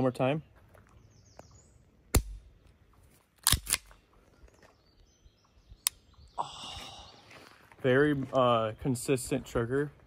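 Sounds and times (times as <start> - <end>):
pistol trigger clicks: 3.4 - 4.0.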